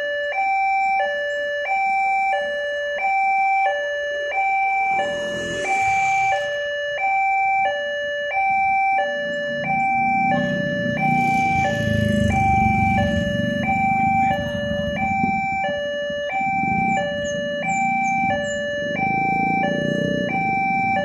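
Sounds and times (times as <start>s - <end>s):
level crossing two-tone alarm: 0.0s - 21.0s
low engine rumble: 9.2s - 21.0s.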